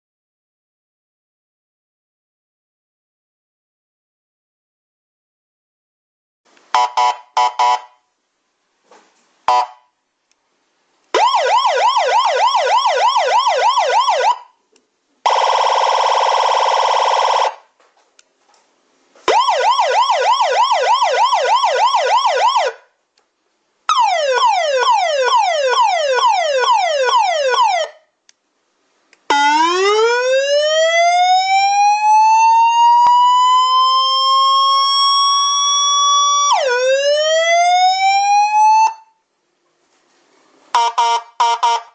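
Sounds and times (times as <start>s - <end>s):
electronic emergency siren: 11.2s - 14.6s, 15.3s - 17.7s, 19.3s - 22.8s, 23.9s - 28.0s, 29.3s - 39.2s, 40.8s - 41.9s.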